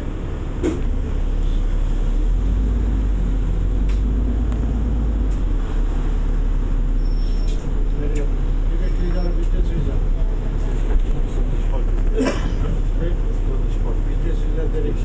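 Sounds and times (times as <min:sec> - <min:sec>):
bus engine running: 0:00.0 - 0:15.0.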